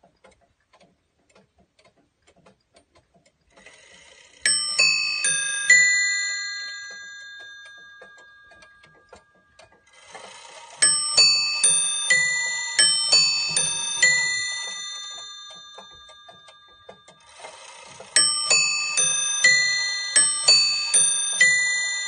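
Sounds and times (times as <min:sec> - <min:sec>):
clock ticking: 0:00.0 - 0:22.0
clock chime train whirring: 0:04.3 - 0:22.0
clock bells chiming: 0:04.4 - 0:09.5, 0:10.4 - 0:22.0.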